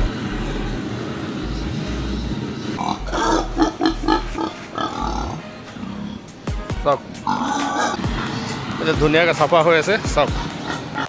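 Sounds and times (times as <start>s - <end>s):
gas burner hiss: 0.0s - 5.2s
pig grunting: 1.5s - 8.6s, 10.3s - 11.0s.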